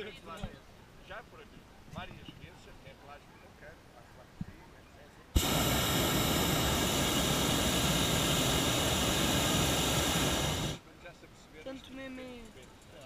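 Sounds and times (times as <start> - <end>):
propane burner roaring: 5.4 - 10.8.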